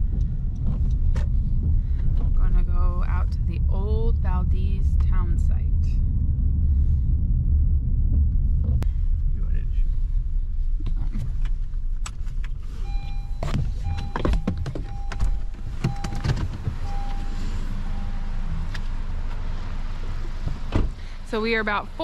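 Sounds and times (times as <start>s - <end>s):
low rumble: 0.0s - 22.0s
warning chime beeping: 12.8s - 18.5s
car door latch clicks: 13.4s - 17.2s.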